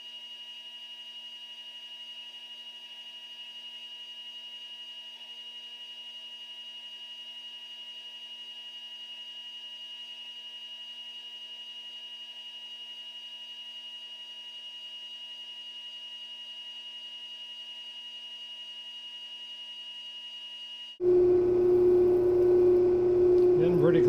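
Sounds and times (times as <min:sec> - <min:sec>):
metal lathe whine: 0:00.0 - 0:24.0
low hum with hiss: 0:21.0 - 0:24.0.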